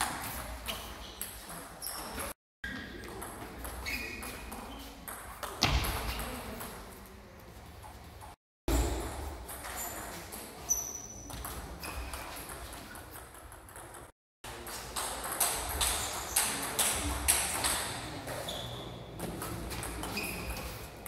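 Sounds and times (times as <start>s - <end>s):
sneaker squeaks on floor: 0.2s - 6.4s, 8.8s - 13.0s, 17.6s - 21.0s.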